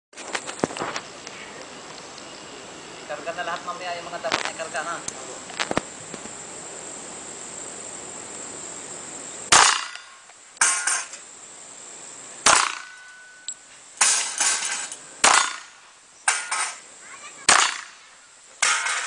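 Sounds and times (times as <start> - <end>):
pistol shots: 9.5 - 10.1, 12.4 - 13.1, 15.2 - 15.7, 17.5 - 18.0
metallic clatter: 10.6 - 11.2, 12.5 - 16.8, 18.6 - 19.0
ringing tone: 12.9 - 13.6.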